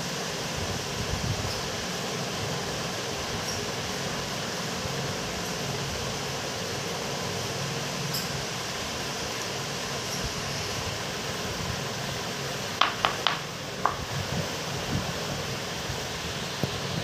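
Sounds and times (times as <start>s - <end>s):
steady hiss with low hum: 0.0s - 17.0s.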